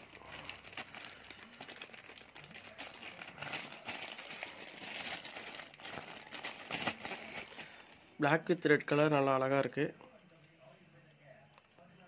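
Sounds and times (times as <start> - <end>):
plastic bag rustling: 0.0 - 8.0.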